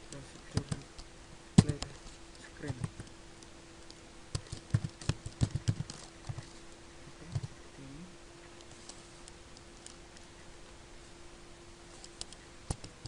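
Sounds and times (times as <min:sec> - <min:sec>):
faint steady hum: 0:00.0 - 0:13.0
keyboard typing: 0:03.8 - 0:06.5.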